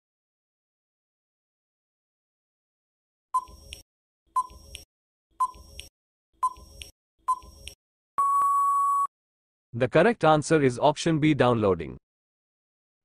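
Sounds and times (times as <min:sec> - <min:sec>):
electronic timer ticks: 0:03.4 - 0:03.8, 0:04.4 - 0:07.8.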